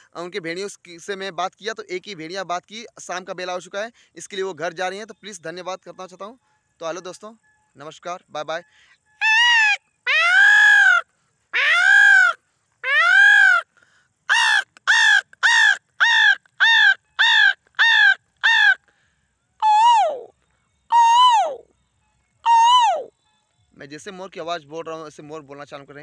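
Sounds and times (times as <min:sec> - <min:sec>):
man mimicking peacock call: 0:09.2 - 0:13.7, 0:14.3 - 0:18.8, 0:19.6 - 0:20.3, 0:20.9 - 0:21.7, 0:22.4 - 0:23.1.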